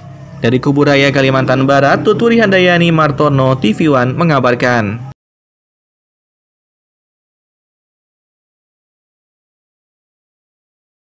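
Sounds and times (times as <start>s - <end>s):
man speaking: 0.4s - 5.2s.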